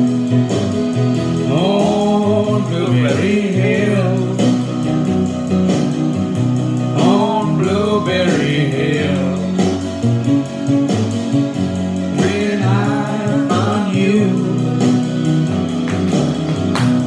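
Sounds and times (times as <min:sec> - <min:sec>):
guitar-led backing music: 0:00.0 - 0:17.0
man singing: 0:01.3 - 0:05.0, 0:06.8 - 0:09.8, 0:12.0 - 0:15.4.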